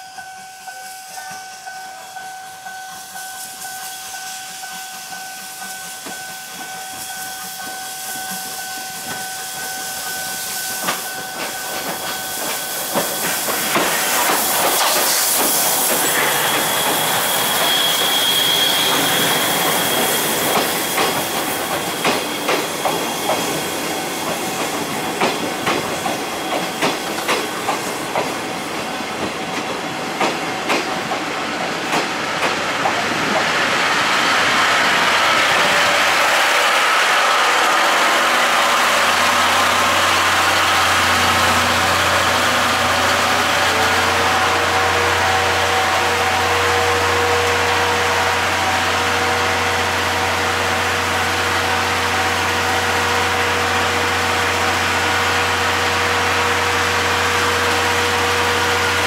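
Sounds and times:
steam locomotive hissing: 0:00.0 - 0:59.0
coaches clicking over rail joints: 0:04.9 - 0:33.6
steady high tone: 0:14.9 - 0:21.9, 0:33.4 - 0:50.8.

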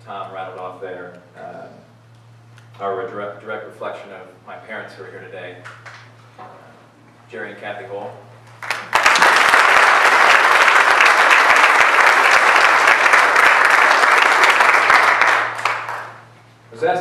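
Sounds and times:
small audience applauding: 0:08.5 - 0:16.4.

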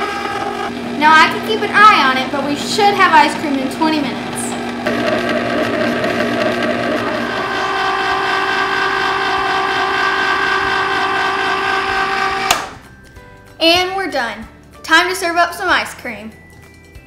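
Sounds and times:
ice cream maker motor humming: 0:00.0 - 0:12.8.

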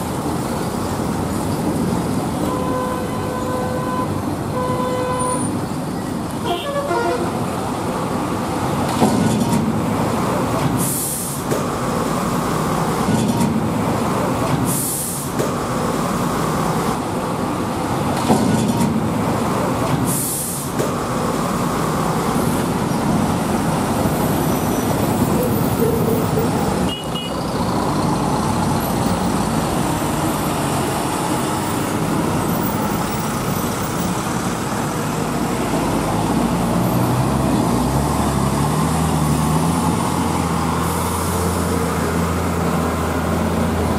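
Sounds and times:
truck engines rumbling: 0:00.0 - 0:43.9
air brakes hissing: 0:10.6 - 0:11.7, 0:14.6 - 0:15.6, 0:19.9 - 0:21.0.

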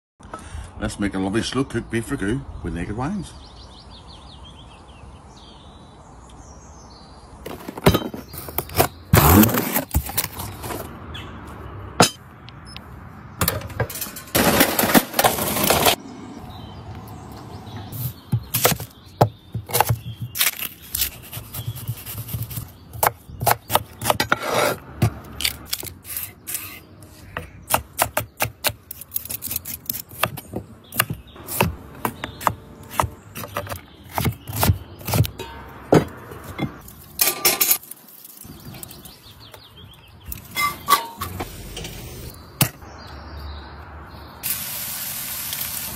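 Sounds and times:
knife chopping on wooden board: 0:18.3 - 0:20.6, 0:29.9 - 0:36.8.

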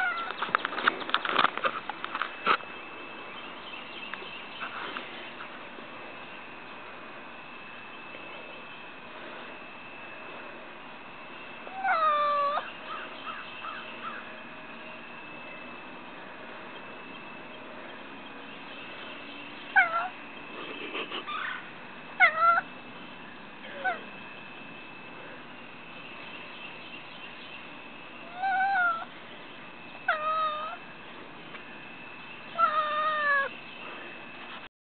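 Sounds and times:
cat meowing: 0:19.8 - 0:20.1, 0:22.2 - 0:22.7, 0:28.3 - 0:29.1, 0:30.1 - 0:30.8, 0:32.6 - 0:33.5.

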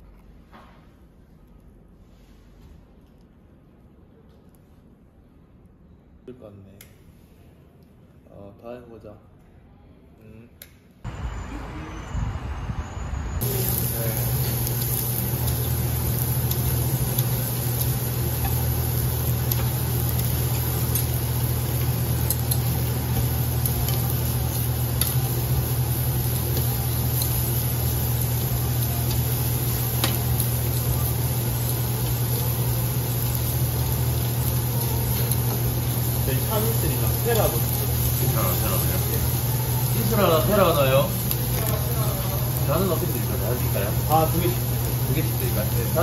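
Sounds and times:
steady low hum: 0:09.4 - 0:46.0
meat sizzling on grill: 0:13.4 - 0:46.0.

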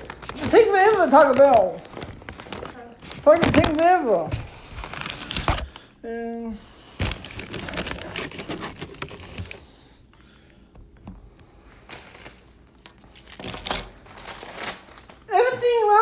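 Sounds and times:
phone handling rustles: 0:07.0 - 0:09.6.

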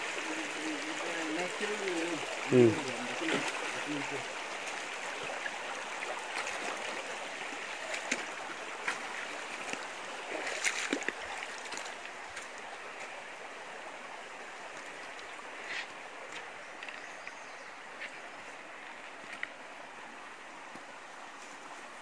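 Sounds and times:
stream water rushing: 0:00.0 - 0:22.0
sharp knocks or splashes: 0:07.9 - 0:11.9.

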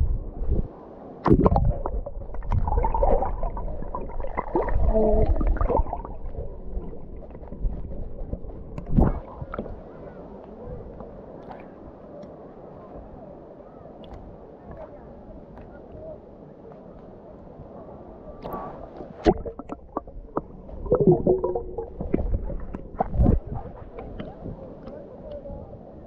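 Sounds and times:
wind buffeting microphone: 0:00.0 - 0:00.7, 0:01.3 - 0:10.0, 0:19.2 - 0:24.7
sea water sloshing and lapping: 0:01.2 - 0:09.8, 0:18.5 - 0:24.9.

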